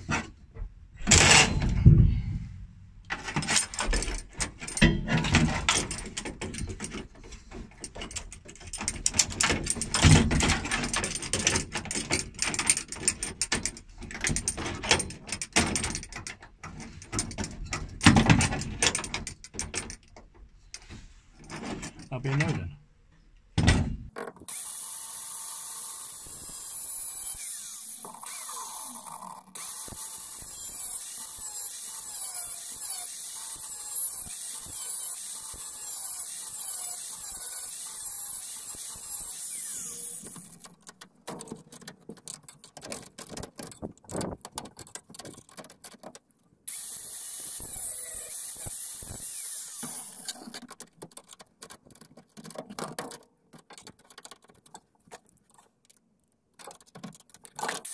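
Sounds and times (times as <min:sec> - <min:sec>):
clicks and clatter: 0:03.0 - 0:20.8, 0:40.2 - 0:46.5, 0:49.8 - 0:57.9
high-pitched power tool whirring: 0:24.5 - 0:40.7, 0:46.7 - 0:50.5.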